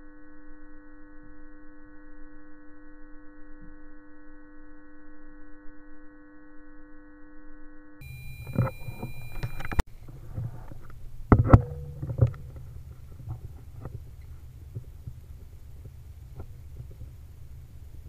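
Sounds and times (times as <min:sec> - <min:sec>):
steady multi-tone hum: 0:00.0 - 0:18.0
camera handling rumble: 0:08.4 - 0:17.2
sharp clicks and knocks: 0:08.4 - 0:17.2.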